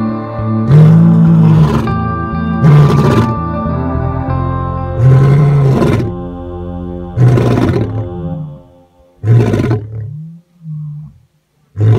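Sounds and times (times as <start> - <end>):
background music: 0.0 - 10.6
lion roaring: 0.7 - 2.0, 2.6 - 3.4, 5.0 - 6.2, 7.2 - 8.5, 9.2 - 11.2.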